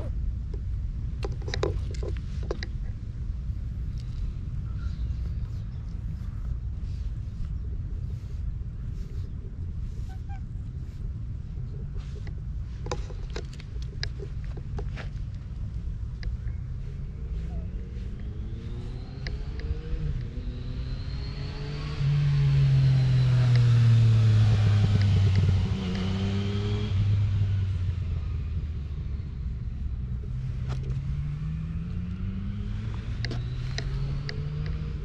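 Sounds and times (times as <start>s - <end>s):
vehicle approaching: 0.9s - 35.0s
vehicle engine passing: 16.8s - 35.0s.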